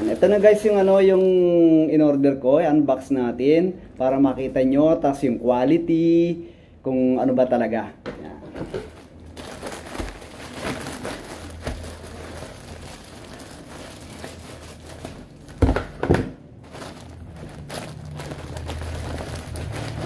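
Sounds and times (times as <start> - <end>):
plastic bag crinkling: 0.0 - 1.5, 8.7 - 16.0, 16.6 - 20.0.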